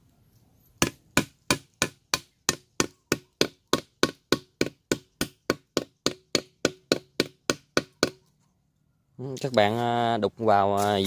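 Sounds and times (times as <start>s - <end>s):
metal tool chiselling wood: 0.8s - 8.4s.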